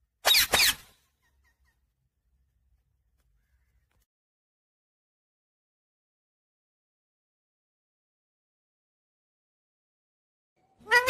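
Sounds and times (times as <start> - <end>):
parakeet high-pitched call: 10.8 - 11.0.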